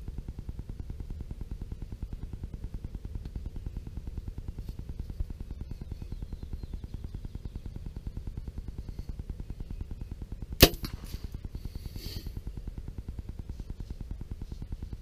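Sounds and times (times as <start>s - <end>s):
bow shot crack: 10.6s - 12.3s.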